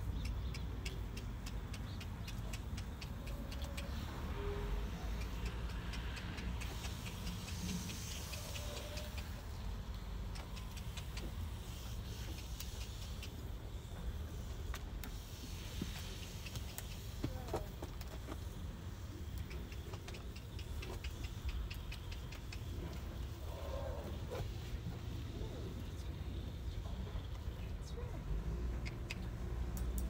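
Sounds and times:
light sharp ticks: 0.0s - 30.0s.

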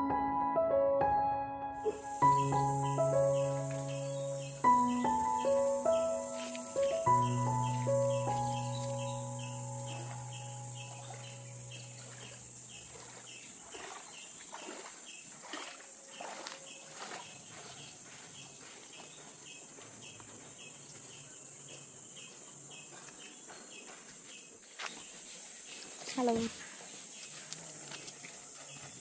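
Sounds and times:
background music: 0.0s - 12.4s
high-pitched insect chorus: 1.8s - 13.2s.

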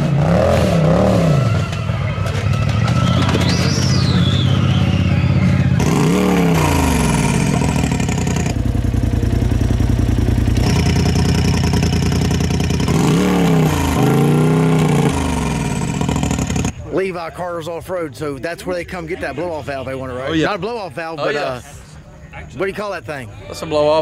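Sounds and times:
engine idling and revving: 0.0s - 16.8s
high falling turbo whistle: 0.9s - 8.5s.

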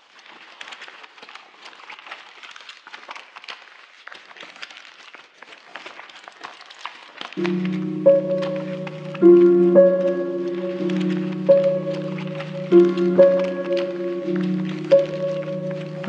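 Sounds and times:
music with held chord: 7.4s - 16.0s.

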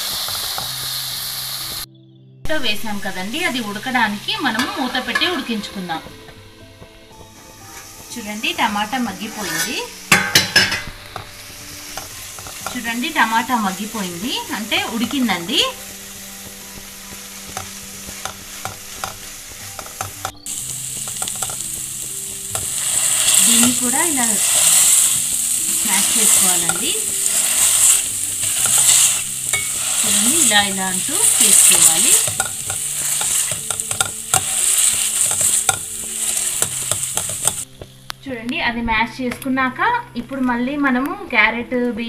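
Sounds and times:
vegetables sizzling in a pan: 0.0s - 1.9s, 2.6s - 38.2s
spatula scraping a metal pan: 4.4s - 5.5s, 9.0s - 13.0s, 16.7s - 21.8s, 22.5s - 37.6s
masher clicking against pan: 31.2s - 37.6s.

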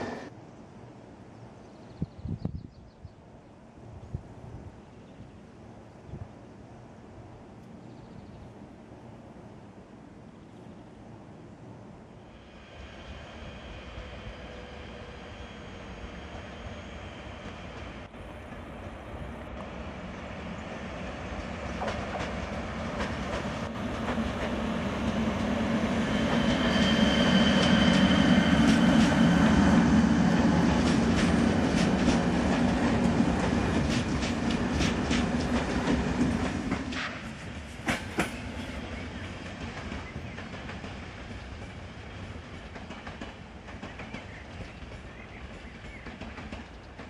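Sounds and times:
wheels rumbling on rails: 12.3s - 47.0s
wheels clacking over rail joints: 21.4s - 26.5s, 30.6s - 38.5s.

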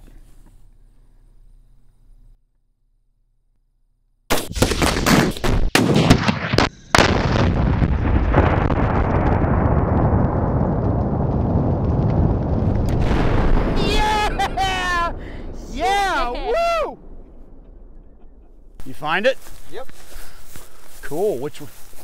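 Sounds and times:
explosive blasts: 4.3s - 21.0s.

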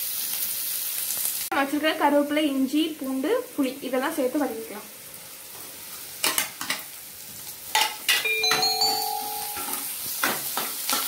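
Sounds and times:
onions sizzling in oil: 0.0s - 8.3s, 9.4s - 11.0s
ringing tone: 8.3s - 9.9s.

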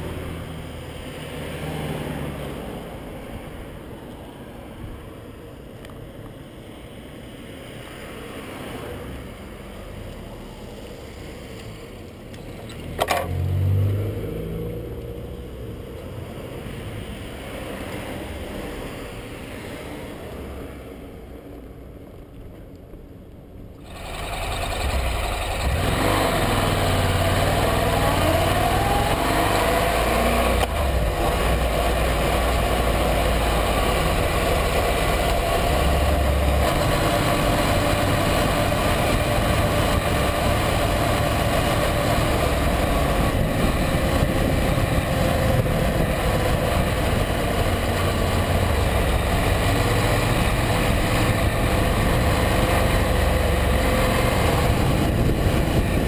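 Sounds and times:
wind and road noise: 0.0s - 56.0s
motorcycle engine accelerating: 23.8s - 56.0s.

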